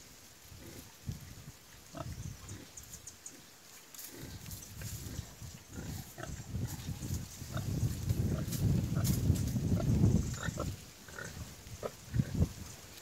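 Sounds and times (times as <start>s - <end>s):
rustling in straw: 0.0s - 13.0s
pig grunting: 4.1s - 6.4s.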